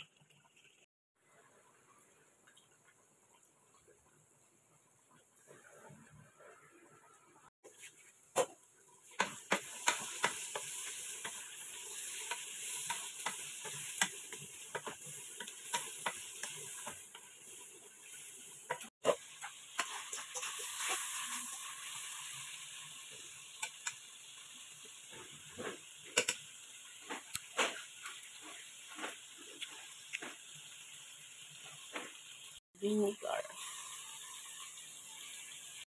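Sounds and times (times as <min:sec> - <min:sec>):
liver sizzling in a frying pan: 0:08.8 - 0:35.9.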